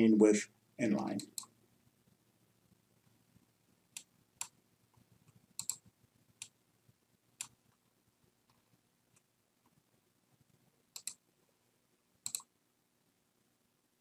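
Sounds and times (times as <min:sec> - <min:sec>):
computer mouse clicking: 0:01.2 - 0:01.5, 0:05.2 - 0:06.6, 0:11.0 - 0:11.2, 0:12.2 - 0:12.5.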